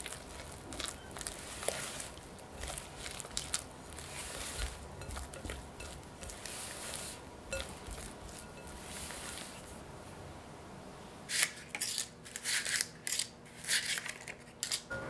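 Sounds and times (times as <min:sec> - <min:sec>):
spatula squishing thick batter: 0:00.0 - 0:09.8.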